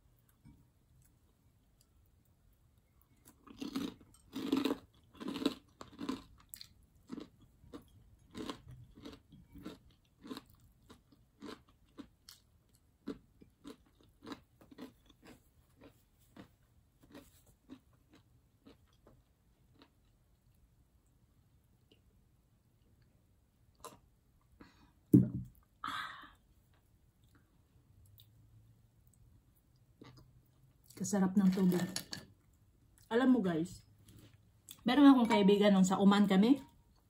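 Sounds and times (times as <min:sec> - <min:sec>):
crunchy chewing of fried food: 0:00.3 - 0:20.9.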